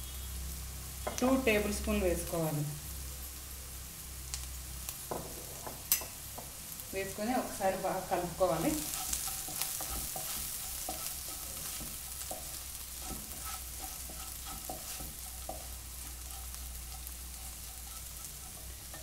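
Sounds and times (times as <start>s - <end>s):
frying sizzle: 0.0s - 19.0s
spatula scraping pan: 8.2s - 19.0s.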